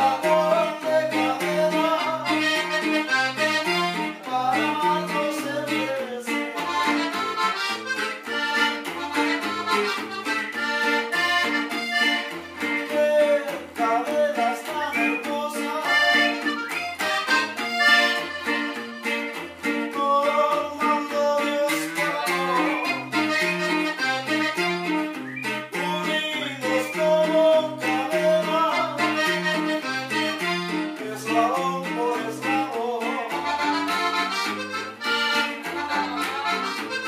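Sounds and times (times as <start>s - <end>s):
button accordion melody: 0.0s - 37.0s
strummed bass guitar: 0.0s - 37.0s.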